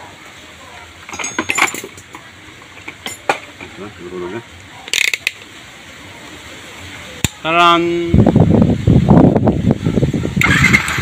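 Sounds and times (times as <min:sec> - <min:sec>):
sharp clicks and handling noise: 0:01.0 - 0:03.8, 0:04.8 - 0:05.5.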